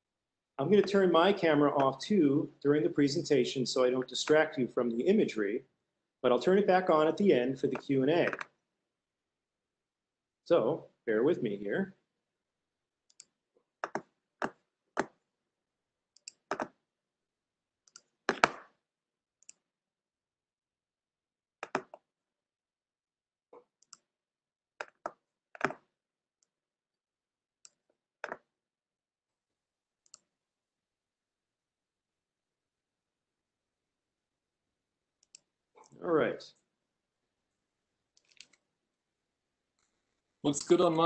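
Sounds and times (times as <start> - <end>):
computer mouse clicks: 13.1 - 15.2, 16.2 - 16.8, 17.8 - 18.7, 19.4 - 19.6, 21.6 - 22.1, 23.6 - 24.1, 24.8 - 26.5, 30.0 - 30.3, 38.1 - 38.6.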